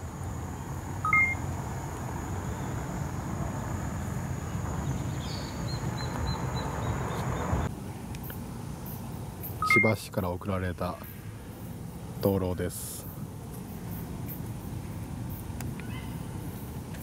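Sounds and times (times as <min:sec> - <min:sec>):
faint high whine: 0:00.0 - 0:06.8, 0:07.6 - 0:17.0
outdoor background hiss: 0:00.0 - 0:17.0
faint high chirps: 0:01.0 - 0:01.4, 0:08.9 - 0:10.0
two-tone electronic beep: 0:01.1 - 0:01.4, 0:09.6 - 0:10.0.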